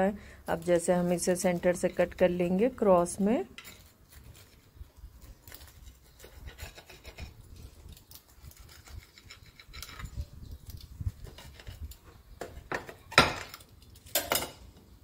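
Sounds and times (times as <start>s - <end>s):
knife scraping through toast: 5.5s - 10.2s, 11.1s - 12.7s.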